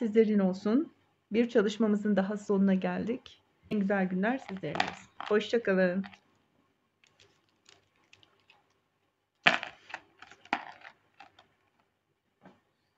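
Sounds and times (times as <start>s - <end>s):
clicks of small hard objects: 3.8s - 6.2s, 7.0s - 8.8s, 9.4s - 11.8s.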